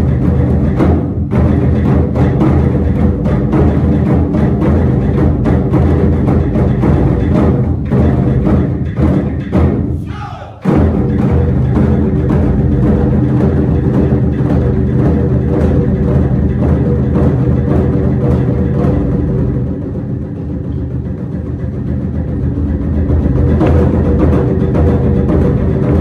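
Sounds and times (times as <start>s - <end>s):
barrel drums beating: 0.0s - 26.0s.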